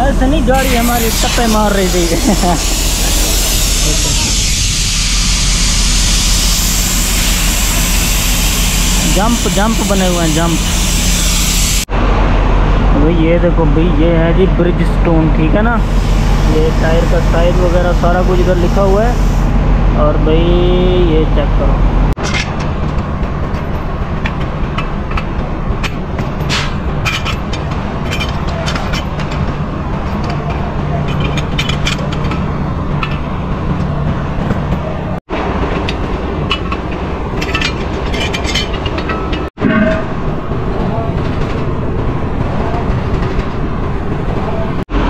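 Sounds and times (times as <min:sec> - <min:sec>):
engine running: 0:00.0 - 0:45.0
metallic clicks and clanks: 0:23.5 - 0:33.3.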